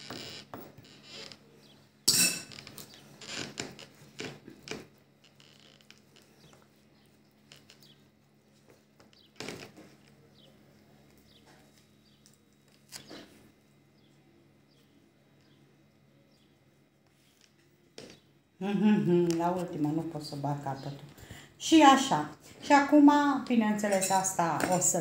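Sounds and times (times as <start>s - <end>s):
metal spoon clinking: 2.1s - 2.5s
faint handling sounds: 16.4s - 18.2s.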